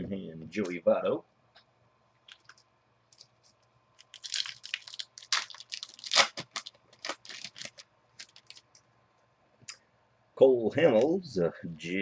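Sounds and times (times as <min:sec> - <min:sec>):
foil wrapper tearing and crinkling: 0:04.0 - 0:08.8.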